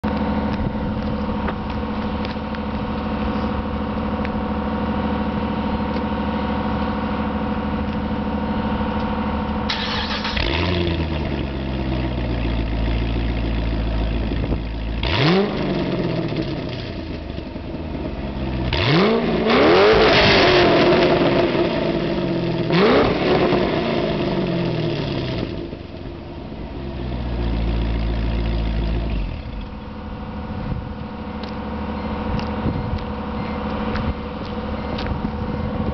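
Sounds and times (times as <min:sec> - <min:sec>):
car engine starting and revving: 0:09.5 - 0:26.1.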